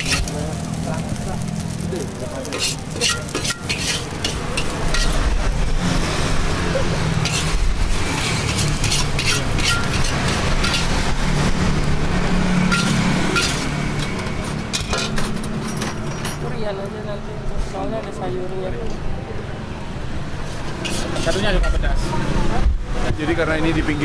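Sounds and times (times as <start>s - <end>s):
road traffic rumble: 0.0s - 24.0s
spatula clinking against wok: 2.5s - 5.2s, 8.2s - 10.9s, 12.7s - 13.7s.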